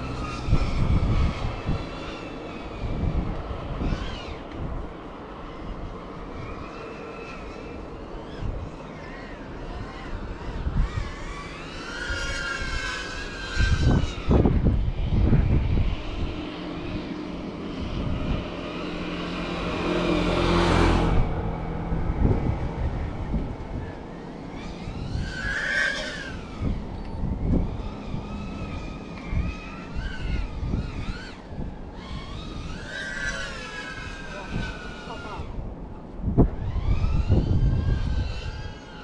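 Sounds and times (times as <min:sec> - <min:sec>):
wind thumps on microphone: 0:00.0 - 0:02.1, 0:13.5 - 0:17.1, 0:20.3 - 0:25.6, 0:26.2 - 0:32.8, 0:34.5 - 0:38.8
drone motors buzzing: 0:00.0 - 0:39.0.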